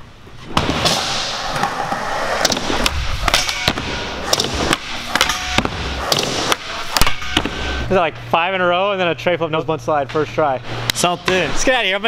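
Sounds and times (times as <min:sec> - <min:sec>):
skateboard wheels rolling on concrete: 0:00.8 - 0:03.4.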